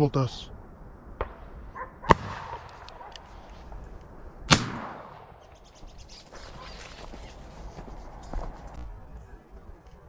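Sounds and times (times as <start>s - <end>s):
shotgun shot: 2.0s - 3.1s, 4.5s - 5.4s.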